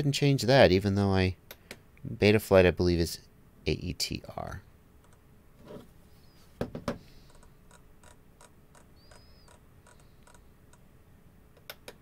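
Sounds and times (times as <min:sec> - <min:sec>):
scroll wheel clicking: 0:07.3 - 0:10.8.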